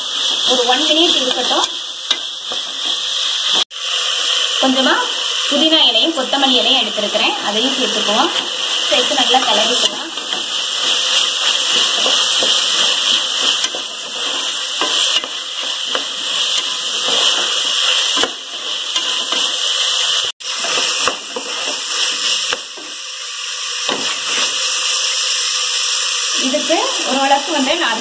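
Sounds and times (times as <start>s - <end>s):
vegetables sizzling in oil: 0.0s - 28.0s
spatula scraping a pot: 8.4s - 22.9s.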